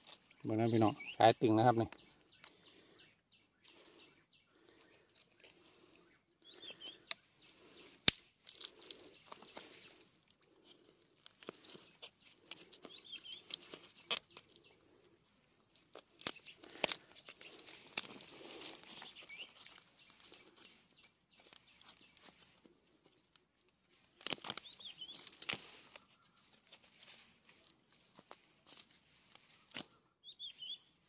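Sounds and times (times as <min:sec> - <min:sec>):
high bird chirps: 0:00.2 - 0:05.0, 0:06.0 - 0:08.0, 0:11.8 - 0:15.3, 0:16.3 - 0:22.2, 0:24.6 - 0:25.4, 0:29.9 - 0:31.0
rustling of handling: 0:06.6 - 0:15.0, 0:15.6 - 0:31.0.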